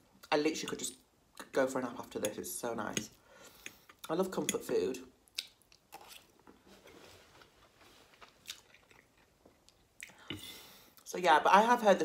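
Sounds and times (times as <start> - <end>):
short breath: 3.2 - 3.9
person chewing food: 5.3 - 6.6, 8.0 - 11.0.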